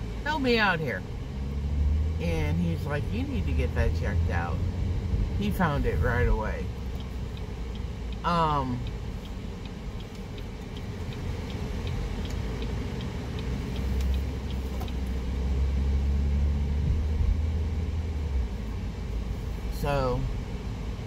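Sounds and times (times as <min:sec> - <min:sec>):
car engine and road rumble: 0:00.0 - 0:21.0
turn signal ticking: 0:00.0 - 0:21.0.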